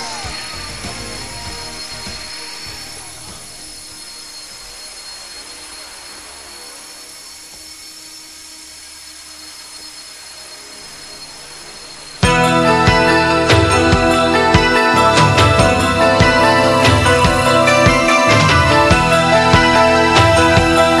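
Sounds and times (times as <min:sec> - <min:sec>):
loud music: 0:00.0 - 0:03.9, 0:12.2 - 0:21.0
rc helicopter whine: 0:00.0 - 0:21.0.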